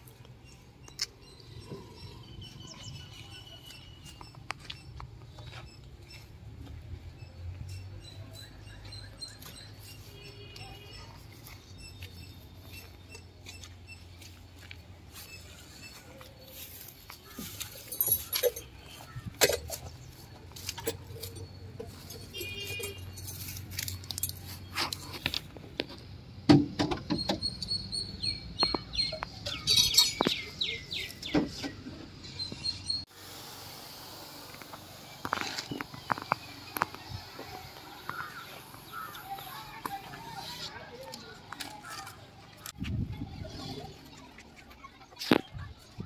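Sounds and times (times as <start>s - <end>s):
birds chirping: 0.0s - 25.3s, 26.8s - 33.1s, 34.2s - 46.0s
sharp clicks and knocks: 23.8s - 27.8s.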